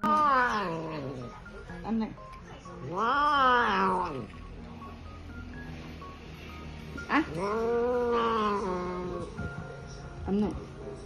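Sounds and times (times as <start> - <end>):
faint music notes: 0.0 - 11.0
cat yowling: 2.9 - 4.2.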